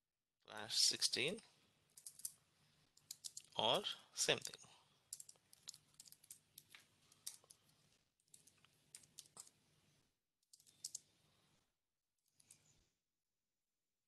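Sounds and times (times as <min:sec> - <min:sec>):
faint keyboard typing: 0:01.9 - 0:03.6, 0:04.4 - 0:09.6, 0:10.5 - 0:11.1.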